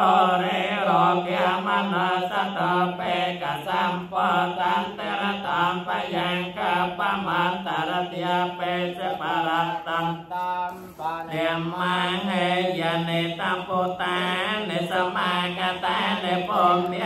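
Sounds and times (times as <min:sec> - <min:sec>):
voices chanting on one pitch: 0:00.0 - 0:17.0.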